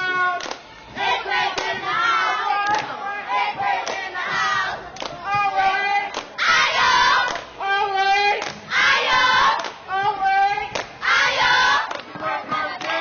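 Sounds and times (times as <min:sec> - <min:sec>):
rhythmic clap or stomp: 0:00.0 - 0:13.0
children chanting in unison: 0:05.8 - 0:07.4, 0:08.7 - 0:09.7, 0:11.0 - 0:13.0.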